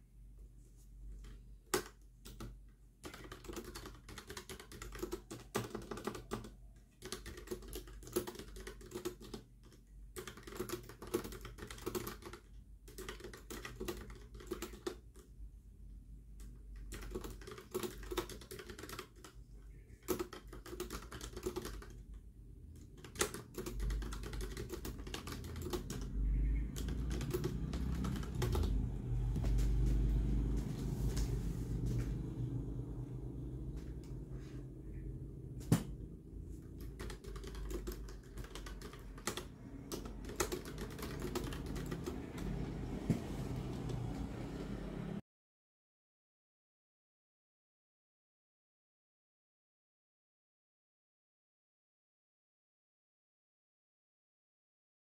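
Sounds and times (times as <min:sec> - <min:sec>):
clicky keyboard typing: 0:01.2 - 0:15.3, 0:16.4 - 0:29.9, 0:36.6 - 0:44.4
low rumble: 0:27.4 - 0:36.8.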